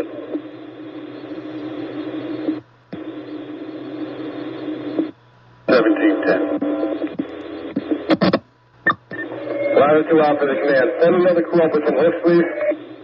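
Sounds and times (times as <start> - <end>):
radio hiss and hum: 0.0 - 13.0
radio squelch click: 1.2 - 5.1, 6.1 - 9.6.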